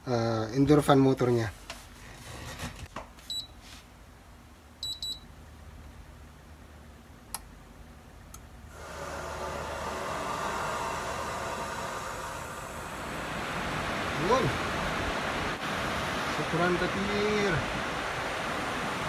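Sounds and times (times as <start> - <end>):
air conditioner clicks: 7.3 - 7.6, 8.2 - 8.5
fan blower rush of air: 8.5 - 19.0.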